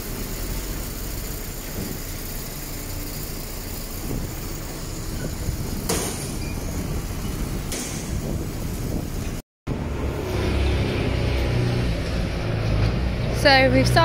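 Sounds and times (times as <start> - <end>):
tractor diesel engines running: 0.0 - 14.0
silage unloading from trailer: 4.0 - 9.4
sharp knock: 5.9 - 6.4, 7.7 - 8.3.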